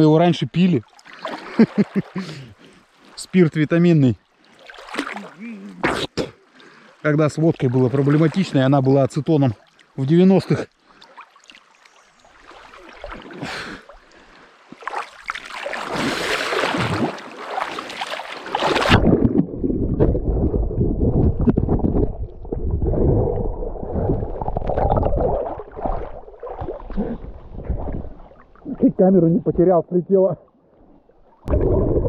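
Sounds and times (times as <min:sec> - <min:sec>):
water splashing from swimming: 0:00.8 - 0:03.2, 0:04.3 - 0:08.8, 0:10.7 - 0:28.8.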